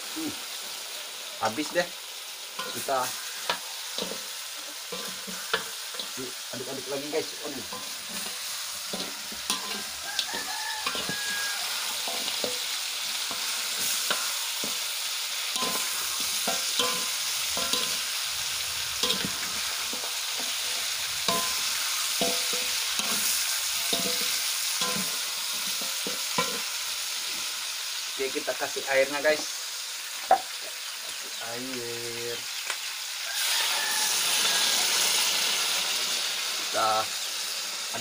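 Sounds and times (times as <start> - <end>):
chicken sizzling in a wok: 0.0 - 38.0
spatula scraping a pan: 2.6 - 27.5.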